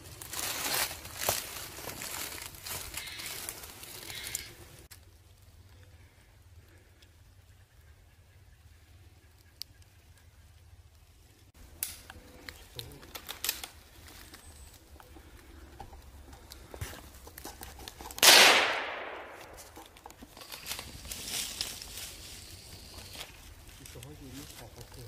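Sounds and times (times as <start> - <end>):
loud gunshot with echo: 18.2 - 19.4.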